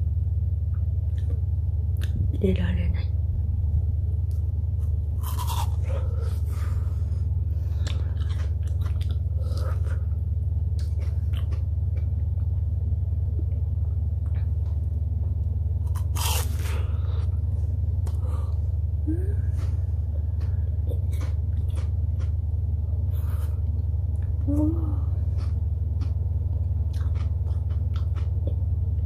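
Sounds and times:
steady low hum: 0.0 - 29.0
crunching frozen yogurt: 4.8 - 6.8, 7.7 - 12.6, 15.8 - 17.0, 19.6 - 22.6, 25.2 - 28.6.

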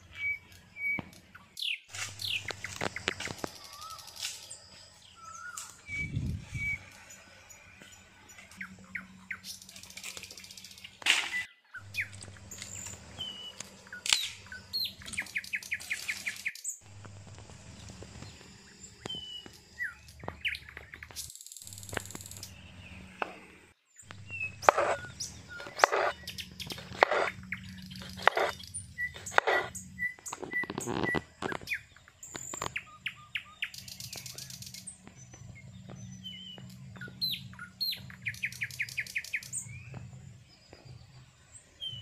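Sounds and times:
birds chirping: 0.0 - 42.0
low steady hum: 11.8 - 16.0, 16.8 - 42.0
knife chopping on cutting board: 24.6 - 26.1.

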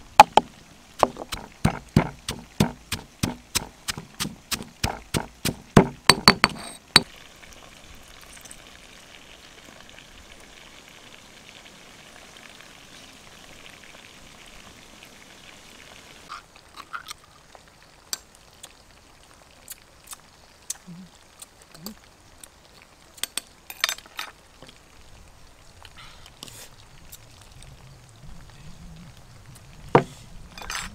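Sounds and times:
stone pestle pounding in mortar: 1.1 - 7.1.

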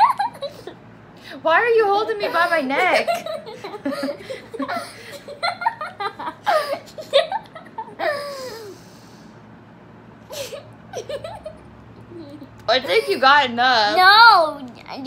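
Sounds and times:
woman laughing: 0.0 - 0.8, 2.2 - 8.8, 10.3 - 11.6.

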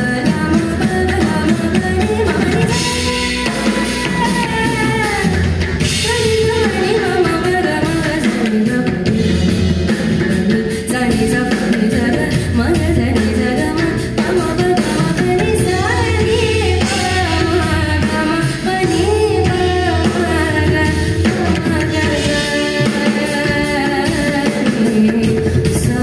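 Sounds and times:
drum kit and percussion: 0.0 - 26.0.

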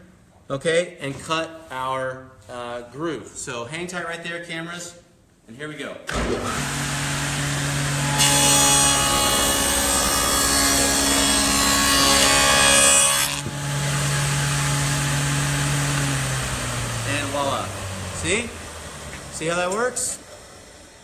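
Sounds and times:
saw blade cutting board: 6.2 - 20.0
table saw motor running: 6.2 - 21.0.

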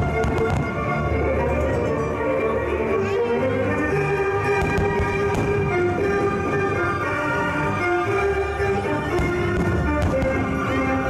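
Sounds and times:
faint fireworks cracks: 0.0 - 0.9, 4.6 - 5.8, 9.0 - 10.8
music with strings: 0.0 - 11.0.

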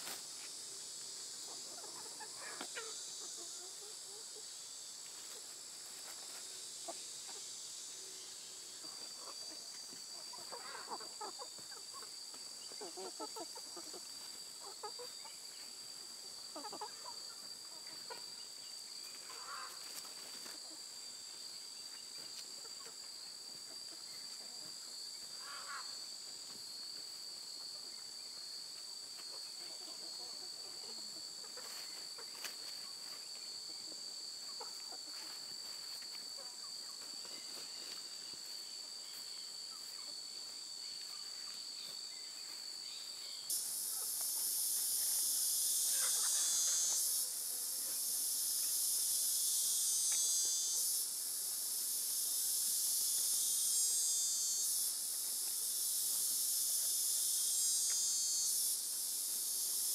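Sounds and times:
insects droning: 0.0 - 59.9
chickens clucking softly: 1.3 - 4.6, 8.6 - 18.5, 29.2 - 38.0
chickens scratching in soil: 5.0 - 6.6.

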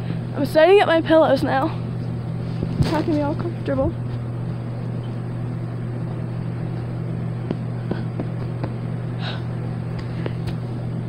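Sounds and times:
electric fan running: 0.0 - 11.0.

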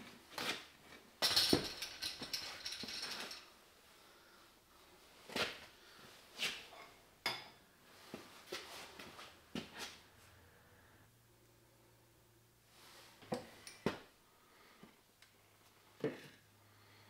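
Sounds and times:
lathe parts clattering and ratcheting: 1.2 - 3.4.

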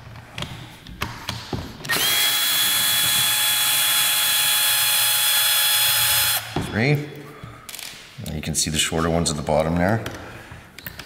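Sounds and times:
electric screwdriver whine: 1.9 - 6.5.

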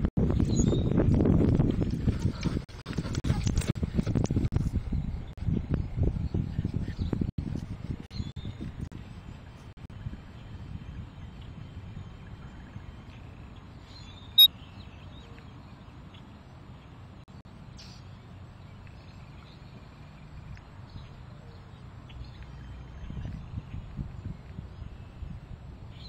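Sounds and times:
wind rumble on microphone: 0.0 - 17.4, 18.1 - 26.0
faint birds chirping: 8.1 - 26.0.

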